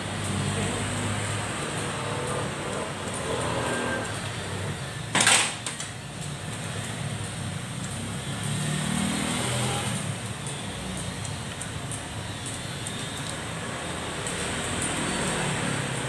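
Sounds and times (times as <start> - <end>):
traffic noise: 0.0 - 16.0.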